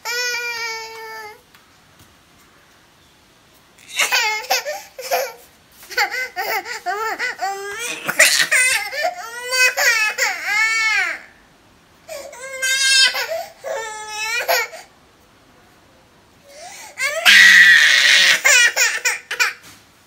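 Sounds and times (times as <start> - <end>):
toddler crying and wailing: 0.0 - 1.4, 3.8 - 11.3, 12.2 - 14.9, 17.0 - 19.5
toddler squealing and laughing: 3.8 - 10.8, 17.0 - 19.6.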